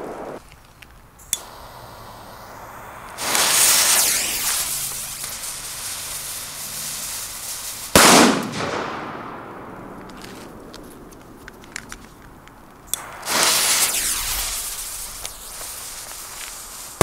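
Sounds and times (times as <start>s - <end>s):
torch lighter clicking and hissing: 0.4s - 5.4s, 12.9s - 17.0s
firework hissing spray: 1.2s - 8.4s, 12.9s - 17.0s
loud firework bang: 2.4s - 5.4s, 8.0s - 9.8s, 13.0s - 16.5s.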